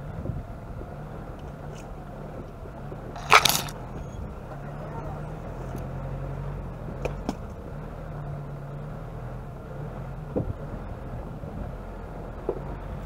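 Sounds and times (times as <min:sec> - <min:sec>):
off-road vehicle engine running: 0:00.0 - 0:13.0
vehicle jolting over rocks: 0:03.2 - 0:03.8.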